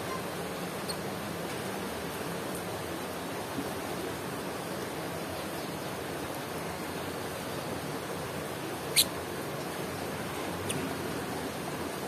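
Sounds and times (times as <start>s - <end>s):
bird high chirp: 8.9s - 9.1s.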